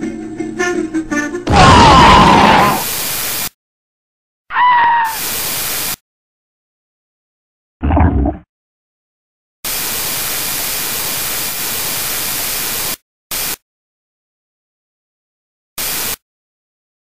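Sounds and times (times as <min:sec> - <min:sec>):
static hiss: 0:05.2 - 0:06.0, 0:09.7 - 0:13.6, 0:15.8 - 0:16.2.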